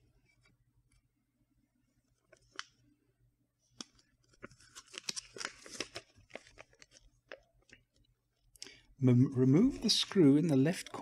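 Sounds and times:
paper crackling and rustling: 3.8 - 7.8.

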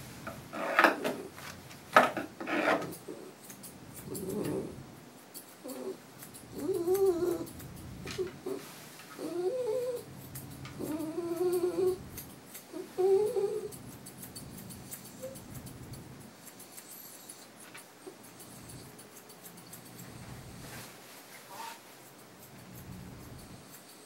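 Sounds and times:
dog whining and moaning: 4.0 - 4.9, 5.6 - 15.9, 16.7 - 19.2.

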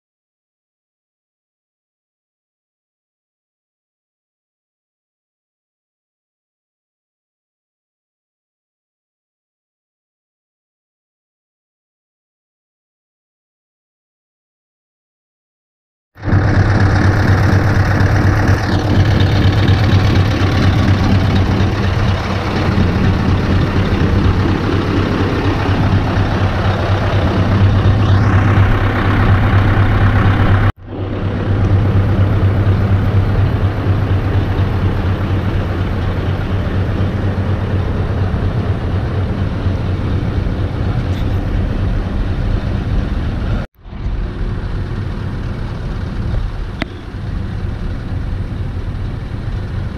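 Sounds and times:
truck diesel engines idling: 16.2 - 49.9.

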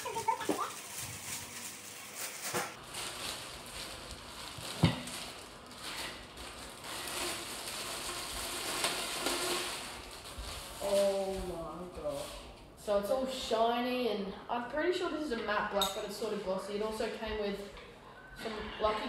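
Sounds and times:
plastic wrapping crinkling: 0.0 - 12.5.

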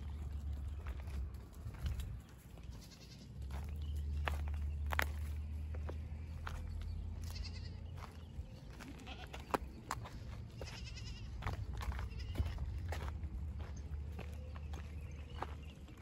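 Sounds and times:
steady low rumble: 0.0 - 16.0
goats bleating: 2.6 - 3.4, 7.2 - 8.1, 8.7 - 9.7, 10.4 - 12.7.

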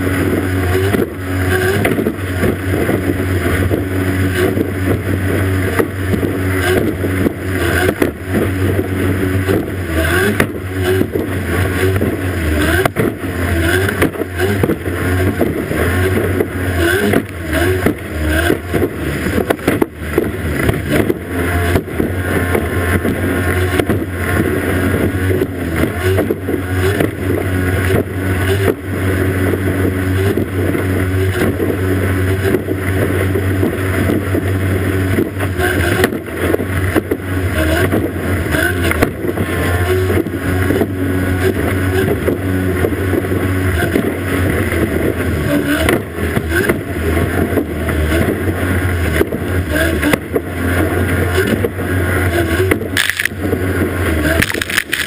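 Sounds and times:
outboard motor running: 0.0 - 55.0.

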